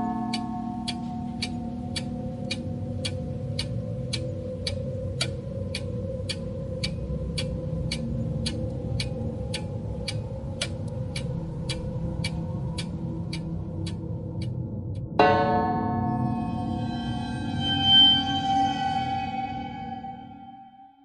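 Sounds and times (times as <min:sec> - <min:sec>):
clock ticking: 0:00.0 - 0:15.1
low steady drone: 0:00.0 - 0:20.4.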